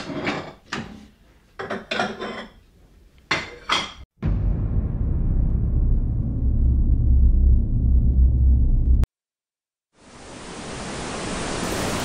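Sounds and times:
kitchenware clinking: 0:00.0 - 0:02.6, 0:03.3 - 0:04.0
steady low rumble: 0:04.2 - 0:09.1.

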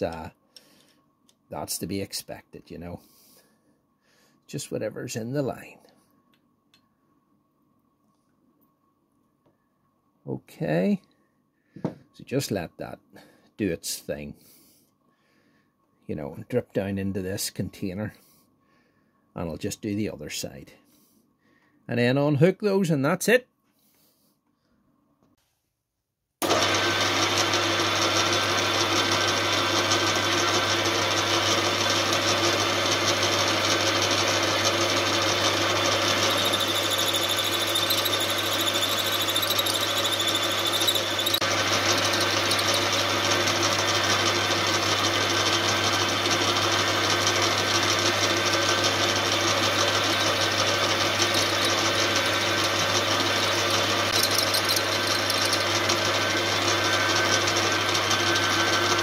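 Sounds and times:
high whine of cutting: 0:26.4 - 0:59.0
metal lathe motor humming: 0:26.4 - 0:59.0.

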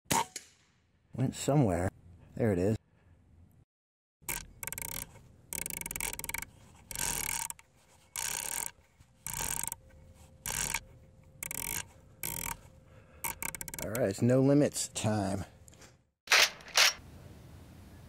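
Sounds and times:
rapid mechanical clicking: 0:04.2 - 0:09.8, 0:10.4 - 0:10.8, 0:11.4 - 0:12.6, 0:13.2 - 0:14.2.

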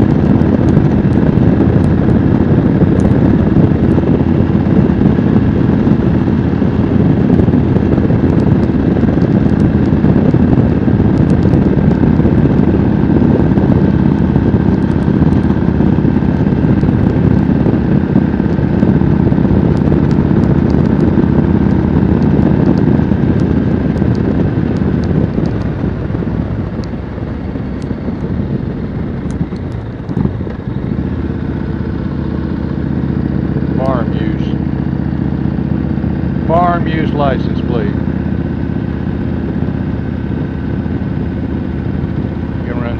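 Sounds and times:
motorcycle engine running: 0:00.0 - 0:42.9
road wind rushing: 0:00.0 - 0:42.9.

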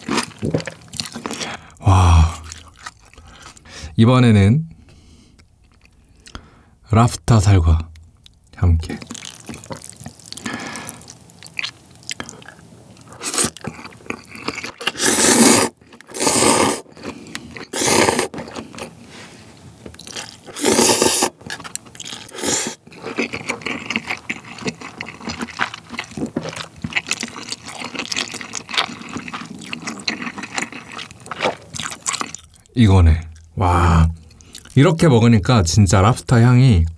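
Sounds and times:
chewing with wet mouth clicks: 0:02.4 - 0:03.7, 0:05.3 - 0:06.4, 0:07.9 - 0:15.0, 0:22.9 - 0:33.5, 0:34.2 - 0:35.1
slurping noodles: 0:13.2 - 0:19.3, 0:20.0 - 0:32.4.

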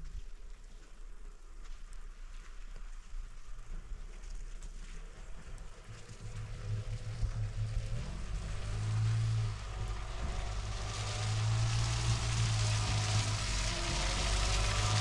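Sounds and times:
pickup truck engine hum: 0:05.0 - 0:15.0.

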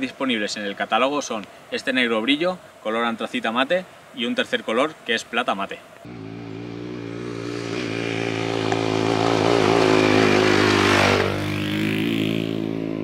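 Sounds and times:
motorcycle riding past: 0:06.1 - 0:13.0.

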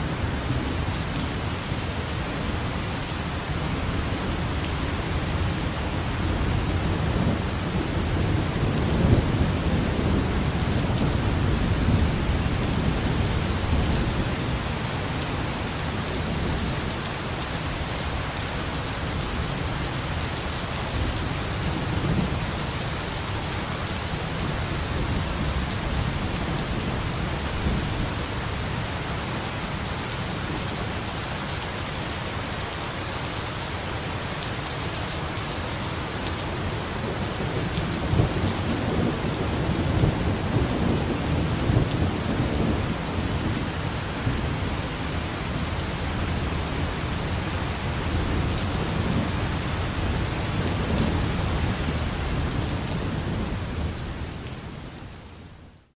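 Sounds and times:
heavy rain falling: 0:00.0 - 0:55.8
low rolling thunder: 0:07.0 - 0:15.2, 0:37.0 - 0:44.5.

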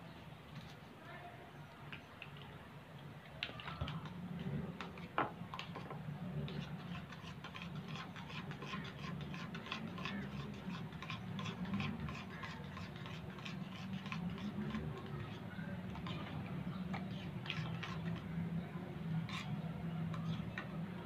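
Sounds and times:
metal spoon scraping ceramic bowl: 0:06.5 - 0:18.3, 0:19.2 - 0:20.7.

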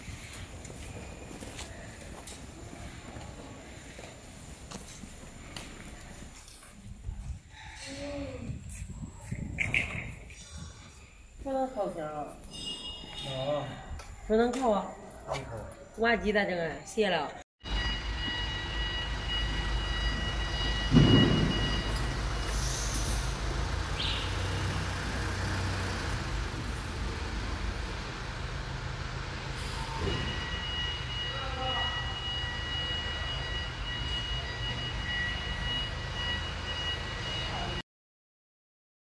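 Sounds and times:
loud thump: 0:20.8 - 0:22.0.

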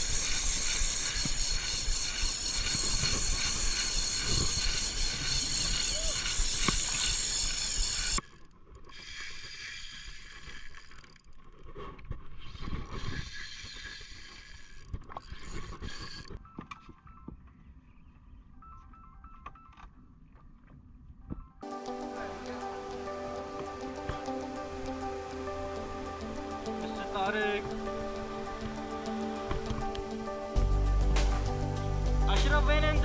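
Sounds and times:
loud steady hiss: 0:00.0 - 0:08.2
fishing reel gears whirring: 0:00.0 - 0:11.4, 0:12.4 - 0:16.4
music: 0:21.4 - 0:33.0.

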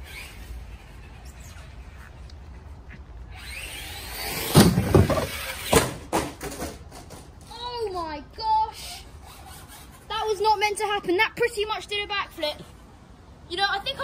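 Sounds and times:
toy truck crashing and clattering: 0:04.2 - 0:07.3.

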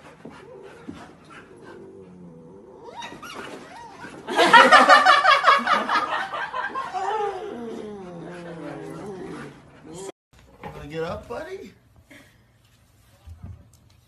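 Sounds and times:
puppies play-fighting: 0:00.0 - 0:04.6, 0:06.7 - 0:10.2.

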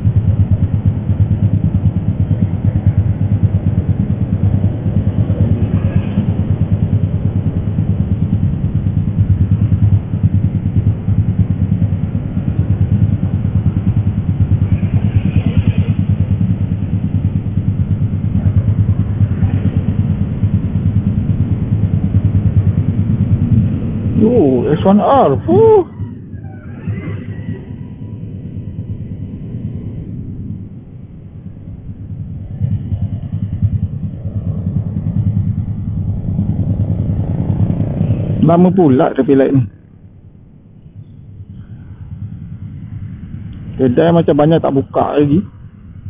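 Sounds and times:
motorcycle engine idling: 0:00.0 - 0:26.4.

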